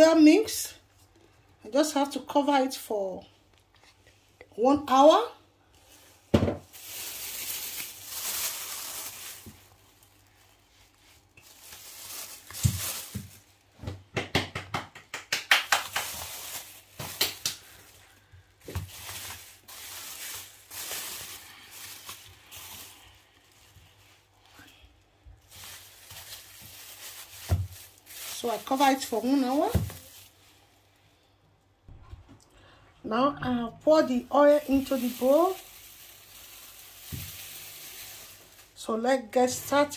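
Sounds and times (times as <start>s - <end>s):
plastic wrap crinkling and rustling: 5.7s - 13.9s, 15.6s - 31.0s, 33.9s - 39.9s.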